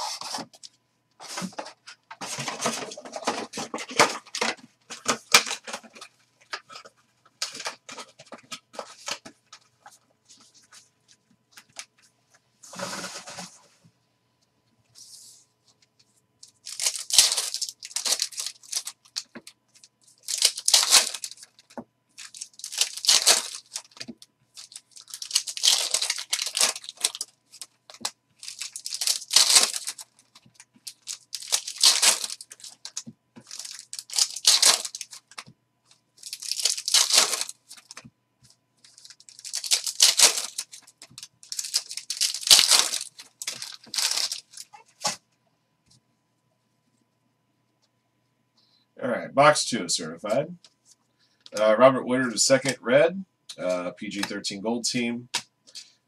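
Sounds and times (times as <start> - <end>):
foil wrappers tearing and crinkling: 16.5 - 35.4, 36.2 - 38.0, 38.8 - 44.8.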